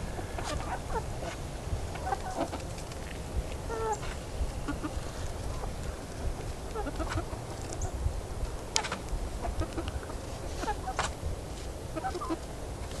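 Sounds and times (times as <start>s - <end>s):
hens clucking softly: 0.1s - 2.7s, 3.7s - 5.8s, 6.7s - 8.0s, 8.8s - 11.1s, 11.9s - 12.5s.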